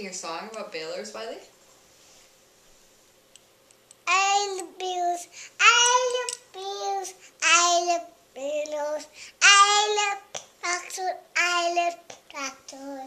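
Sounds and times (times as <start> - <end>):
child singing in a high voice: 4.1 - 13.0.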